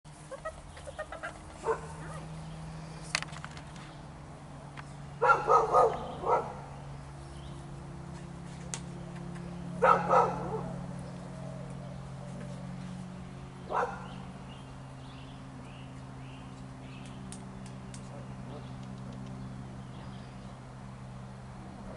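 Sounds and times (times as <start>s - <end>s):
steady low hum: 0.1s - 21.9s
dog barking: 1.6s - 2.3s, 5.2s - 6.6s, 9.8s - 10.8s, 13.7s - 14.2s.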